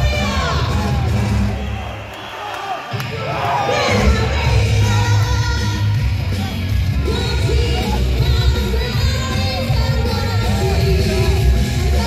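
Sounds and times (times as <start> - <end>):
woman singing pop song: 3.6 - 12.0
driving bass beat: 3.9 - 12.0.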